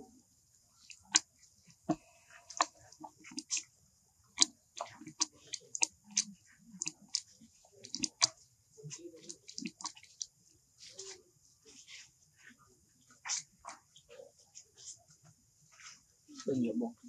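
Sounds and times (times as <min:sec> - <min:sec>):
monkey chewing with crunching clicks: 0:02.5 - 0:03.6, 0:04.4 - 0:08.4, 0:09.2 - 0:10.3.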